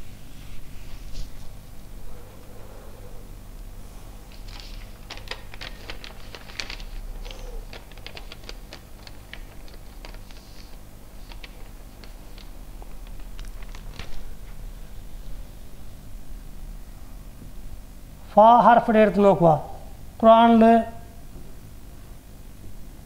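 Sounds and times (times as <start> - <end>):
paper crackling being leafed through: 4.3 - 14.7.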